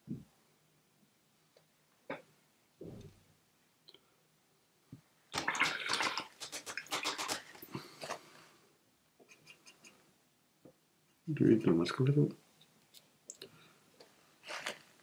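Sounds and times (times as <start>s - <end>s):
brush swishing in water: 5.5s - 8.2s.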